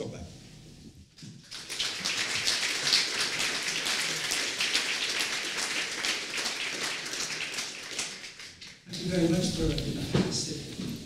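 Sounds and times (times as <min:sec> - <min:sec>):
audience applauding: 0:01.4 - 0:09.4.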